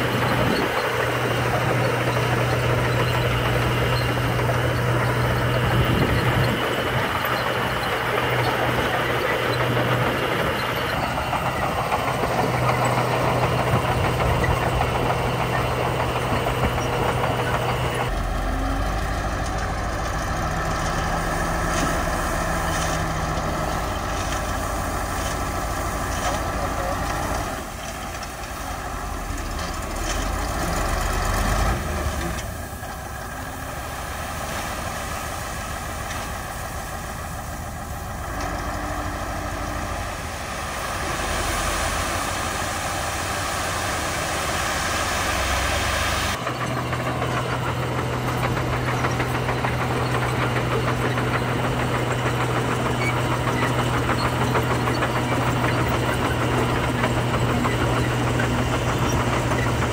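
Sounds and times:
bulldozer diesel engine: 0:00.0 - 0:59.9
bulldozer pushing gravel: 0:00.0 - 0:59.9
dump truck diesel engine: 0:00.0 - 0:59.9.

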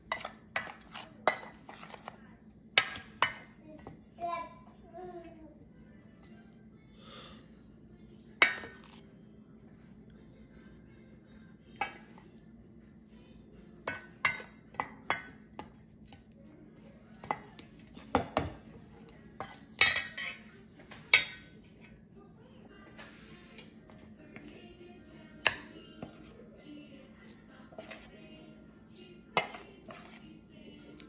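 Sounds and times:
spoon scraping steel pan: 0:27.7 - 0:28.2, 0:29.4 - 0:30.3.

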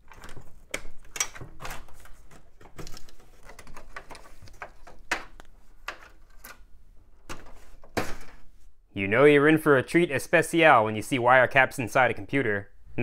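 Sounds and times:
cables rustling in metal case: 0:00.0 - 0:08.7.

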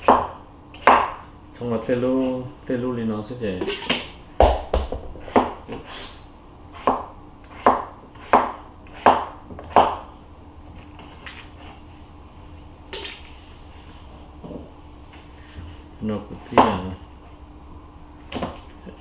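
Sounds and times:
knife chopping on cutting board: 0:00.0 - 0:01.2, 0:03.6 - 0:05.9, 0:06.8 - 0:10.1.

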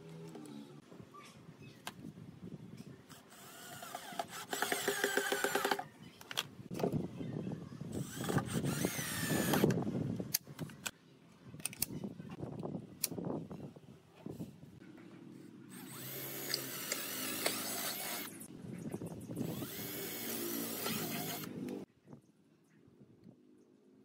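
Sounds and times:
cordless drill motor whine: 0:08.0 - 0:09.8, 0:15.7 - 0:18.3, 0:19.4 - 0:21.5.

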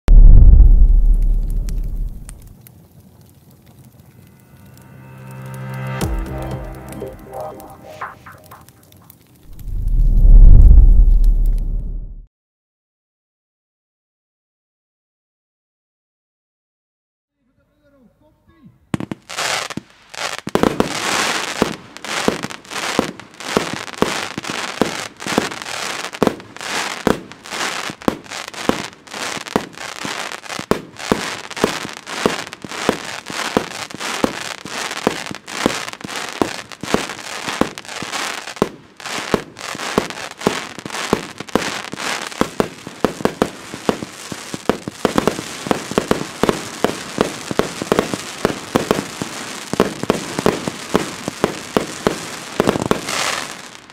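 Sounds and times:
fireworks cake firing shots: 0:00.1 - 0:02.5, 0:42.3 - 0:53.5
fireworks crackling: 0:00.1 - 0:12.0, 0:18.9 - 0:53.9.

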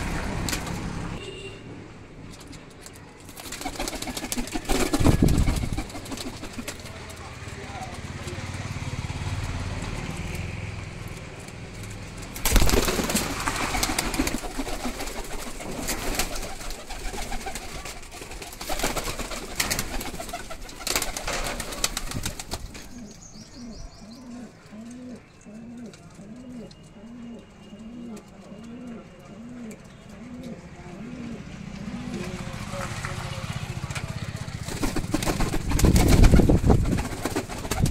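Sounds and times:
pigeon wings flapping: 0:00.0 - 0:01.0, 0:02.4 - 0:08.4, 0:09.2 - 0:23.0, 0:32.1 - 0:37.9
pigeon cooing: 0:12.7 - 0:32.6.

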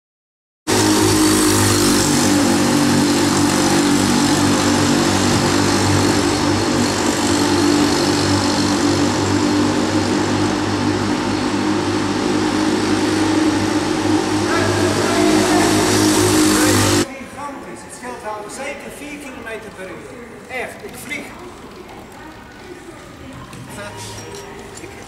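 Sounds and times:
small motorbike engine running: 0:00.7 - 0:17.1.

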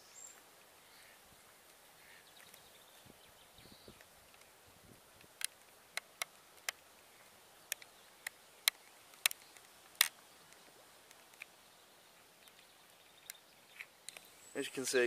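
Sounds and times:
faint background hiss: 0:00.0 - 0:15.0
sharp clicks: 0:07.6 - 0:11.5.

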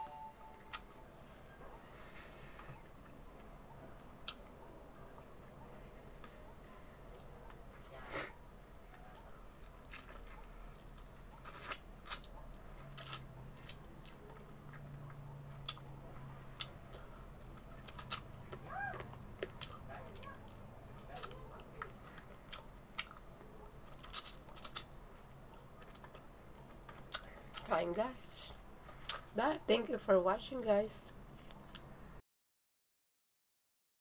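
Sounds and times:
person chewing food: 0:04.2 - 0:05.6, 0:08.7 - 0:29.3, 0:31.2 - 0:31.9.

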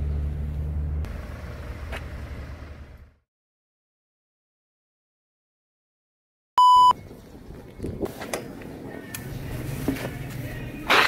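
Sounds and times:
short electronic beep: 0:06.6 - 0:07.0.

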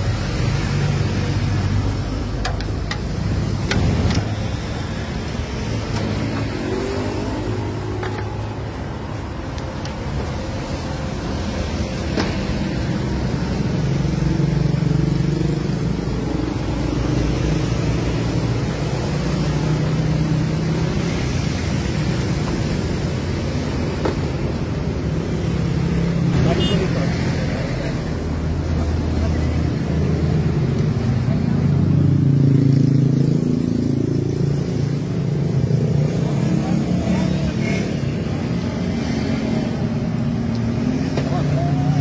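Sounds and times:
traffic engines revving: 0:00.0 - 0:42.0.

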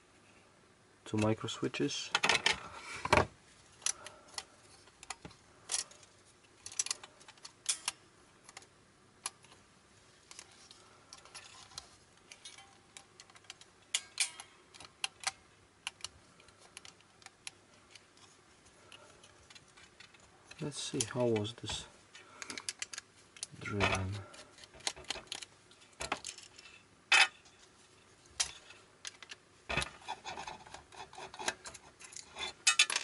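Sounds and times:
small plastic and metal parts clicking: 0:03.8 - 0:09.6, 0:10.3 - 0:21.5, 0:22.4 - 0:27.3.

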